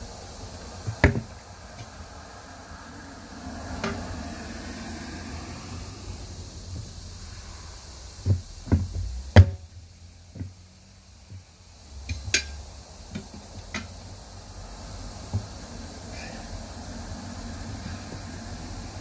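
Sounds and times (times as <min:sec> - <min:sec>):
tire irons clanking on steel rim: 0:03.6 - 0:04.6, 0:08.1 - 0:10.6, 0:11.2 - 0:14.2.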